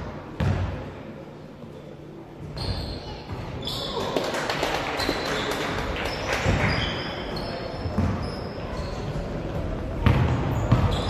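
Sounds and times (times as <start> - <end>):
basketball bouncing: 0.4 - 0.7, 7.9 - 8.2, 10.0 - 11.0
sneakers squeaking: 0.4 - 0.7, 2.4 - 4.2, 5.0 - 11.0.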